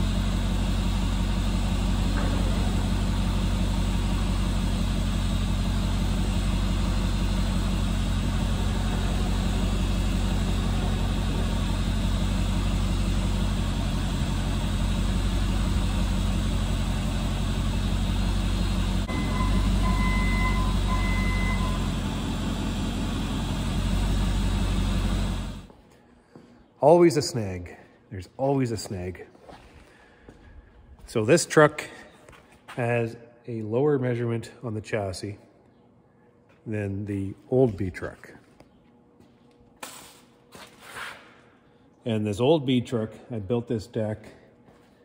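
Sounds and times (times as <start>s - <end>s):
vehicle engine running: 0.0s - 25.8s
short high beeps: 19.1s - 21.9s.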